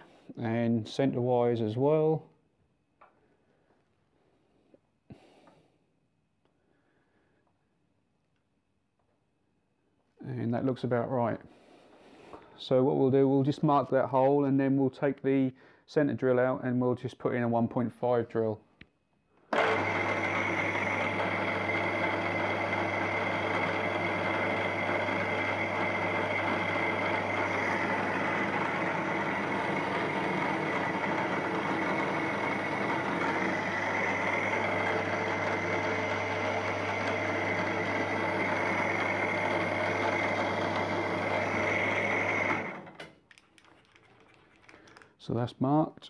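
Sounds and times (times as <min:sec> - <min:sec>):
milling machine running: 0:19.5 - 0:42.9.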